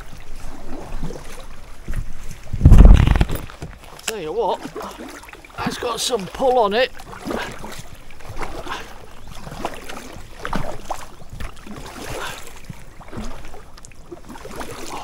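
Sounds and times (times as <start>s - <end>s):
kayak paddle splashing: 0.0s - 15.0s.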